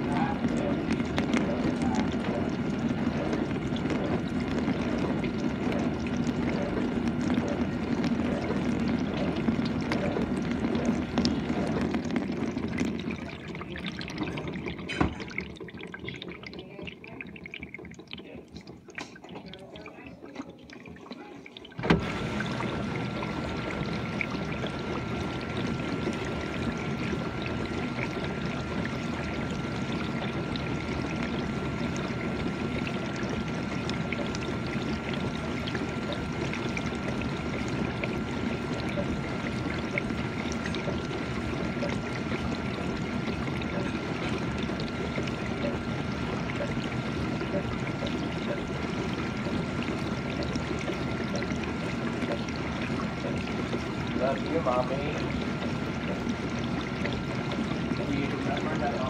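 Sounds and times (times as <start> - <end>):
dishwasher running: 0.0 - 59.0
water splashing: 0.0 - 59.0
water trickling: 0.0 - 59.0
dishwasher thump: 21.8 - 22.1.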